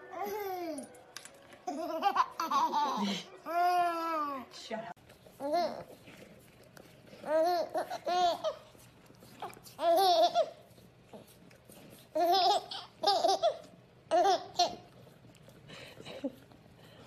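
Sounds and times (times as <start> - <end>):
baby giggling: 1.7 - 4.2, 9.8 - 10.6, 12.2 - 14.9.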